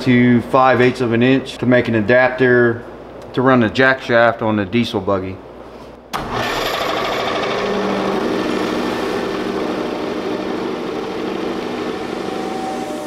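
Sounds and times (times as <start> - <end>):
metal lathe running: 6.2 - 13.0.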